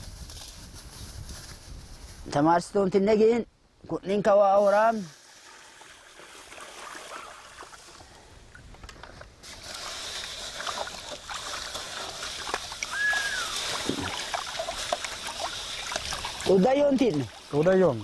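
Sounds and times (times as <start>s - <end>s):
water sloshing and splashing: 5.1s - 8.1s, 9.4s - 18.0s.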